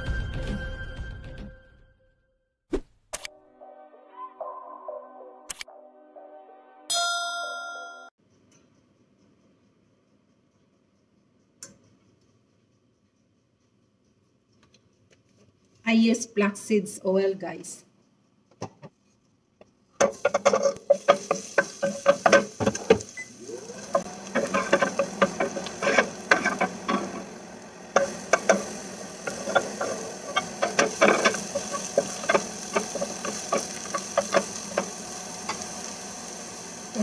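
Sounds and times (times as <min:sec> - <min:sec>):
wooden spatula scraping a pan: 0:20.0 - 0:35.9
onion sizzling in hot oil: 0:20.0 - 0:37.0.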